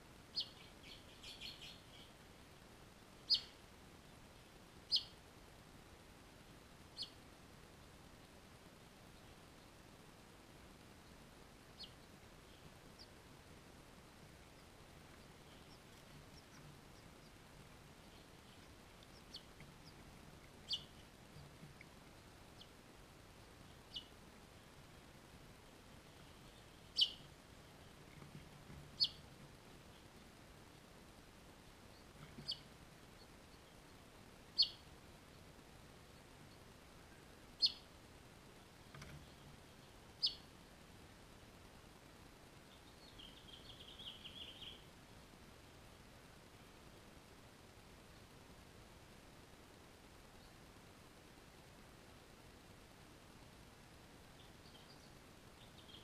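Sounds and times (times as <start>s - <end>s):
faint low hum: 0.0s - 56.0s
finches chirping: 0.3s - 2.2s, 3.2s - 3.6s, 4.9s - 5.2s, 7.0s - 7.2s, 11.0s - 13.2s, 14.3s - 22.7s, 23.6s - 24.2s, 26.2s - 29.3s, 31.8s - 35.4s, 37.6s - 37.9s, 39.2s - 40.5s, 42.7s - 44.8s, 54.3s - 56.0s.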